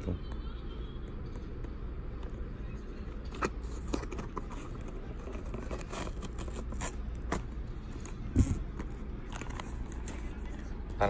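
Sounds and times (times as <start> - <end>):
packaging scrapes and rustles: 3.4 - 7.4.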